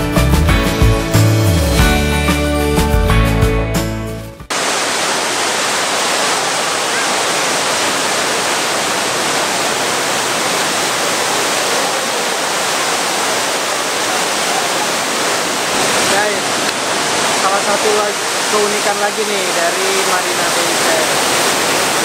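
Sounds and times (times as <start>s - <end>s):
background music: 0.0s - 4.5s.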